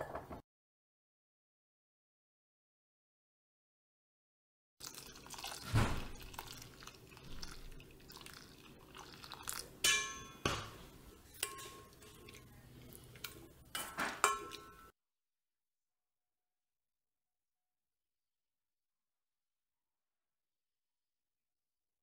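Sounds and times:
metal spoon scraping steel bowl: 0:11.3 - 0:14.9
bowl ringing: 0:14.2 - 0:14.9.

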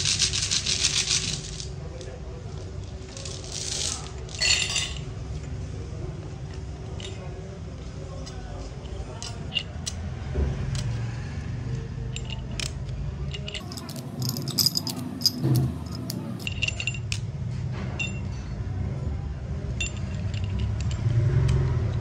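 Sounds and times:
steel rollers clinking in metal cage: 0:12.1 - 0:17.3.

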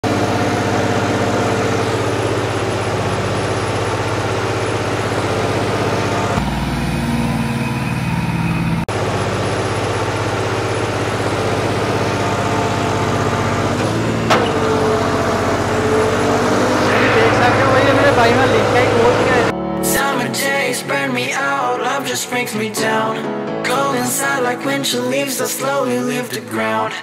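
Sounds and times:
diesel tractor engines running: 0:00.0 - 0:19.5
downward sweeping tone: 0:14.6 - 0:20.3.

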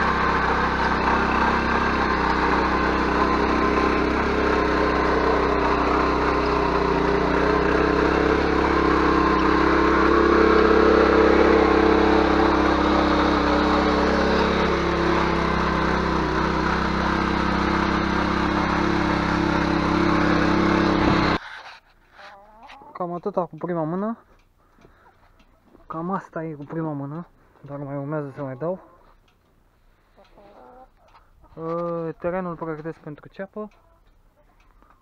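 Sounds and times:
tiller engine running: 0:00.0 - 0:21.7.

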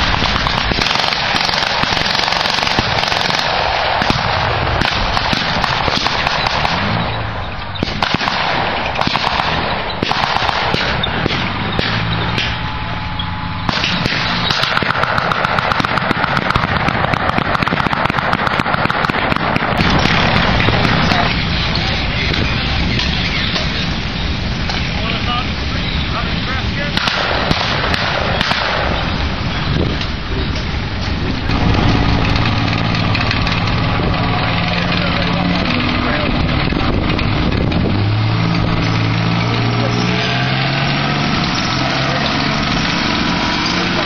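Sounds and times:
machine-gun bursts: 0:00.0 - 0:07.2, 0:07.8 - 0:12.1, 0:13.7 - 0:21.3
rifle shots: 0:00.0 - 0:21.4, 0:26.9 - 0:29.4
vehicle engines running: 0:00.0 - 0:44.0.

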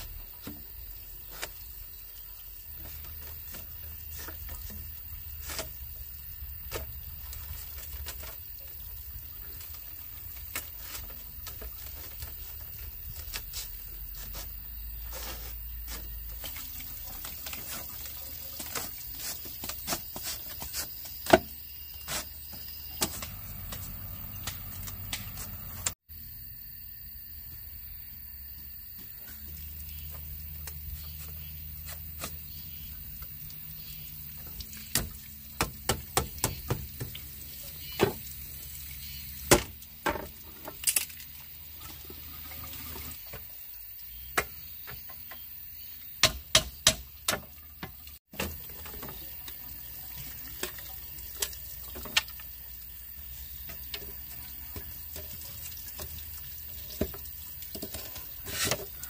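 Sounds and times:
water running: 0:00.0 - 0:26.0, 0:28.8 - 0:59.0
sharp knocks and clatters: 0:34.9 - 0:37.3.

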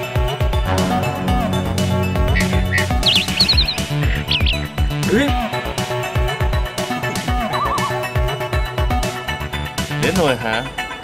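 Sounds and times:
background music with beat: 0:00.0 - 0:11.0.

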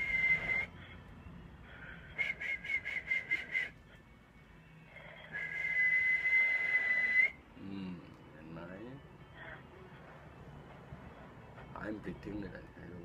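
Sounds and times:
man whistling high note: 0:00.0 - 0:00.8, 0:02.0 - 0:03.8, 0:05.2 - 0:07.4.

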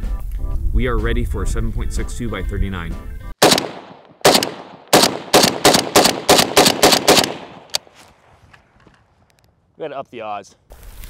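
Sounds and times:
rifle shots echoing: 0:03.4 - 0:07.9.

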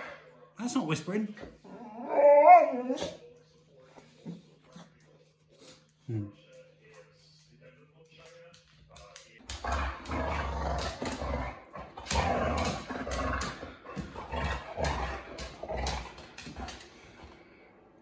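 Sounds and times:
dog grumbling and growling: 0:01.6 - 0:03.2, 0:09.5 - 0:17.0.

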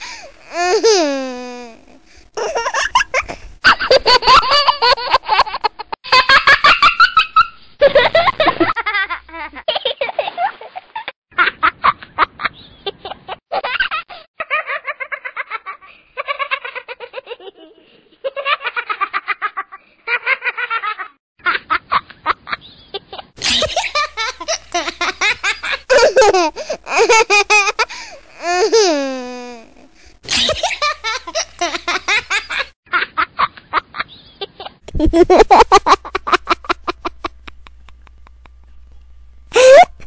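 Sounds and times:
babies laughing: 0:02.4 - 0:07.2
low hum: 0:36.0 - 0:40.0.

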